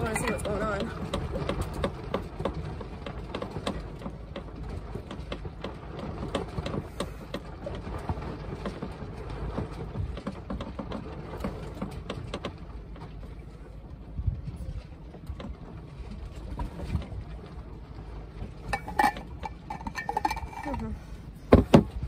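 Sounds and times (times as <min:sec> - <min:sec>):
water rushing along hull: 0:00.0 - 0:22.0
wind on microphone: 0:14.1 - 0:17.4.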